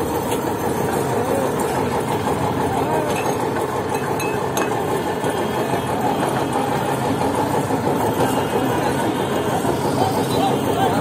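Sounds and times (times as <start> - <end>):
traffic engines idling: 0.0 - 11.0
faint clinks: 3.1 - 4.8.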